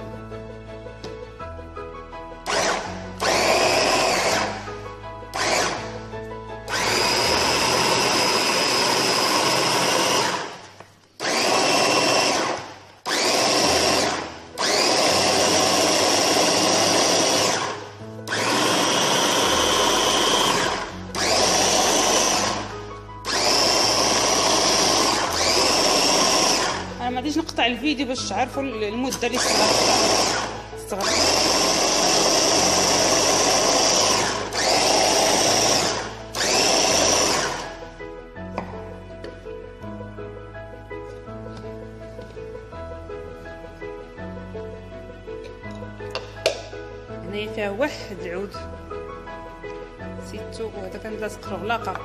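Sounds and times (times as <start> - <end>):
food chopper motor whining: 2.5 - 4.6, 5.3 - 5.9, 6.7 - 10.6, 11.2 - 27.0, 29.4 - 37.8.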